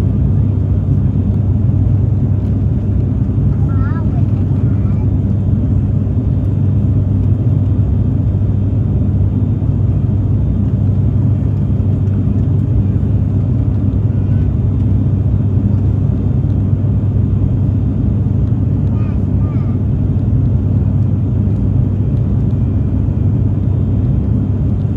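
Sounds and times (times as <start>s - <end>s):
airliner engine and propeller drone: 0.0s - 24.9s.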